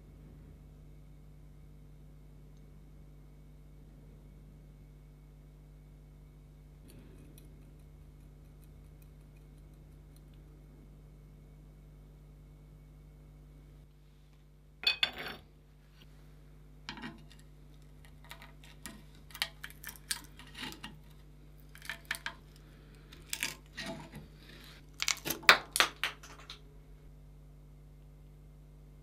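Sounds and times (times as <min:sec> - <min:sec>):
wood scraping and splintering: 0:23.1 - 0:25.5.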